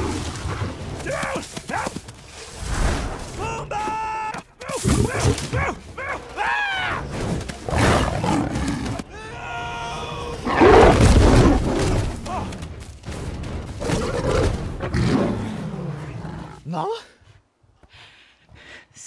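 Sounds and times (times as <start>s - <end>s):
lions snarling and roaring: 7.6s - 9.0s, 10.4s - 12.1s, 13.8s - 16.6s.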